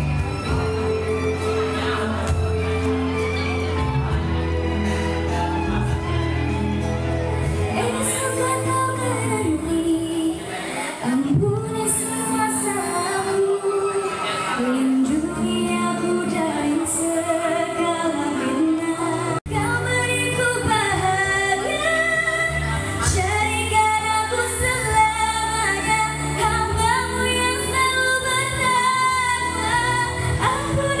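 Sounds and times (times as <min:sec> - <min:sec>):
low instrumental accompaniment: 0:00.0 - 0:31.0
girl singing into microphone: 0:07.7 - 0:31.0.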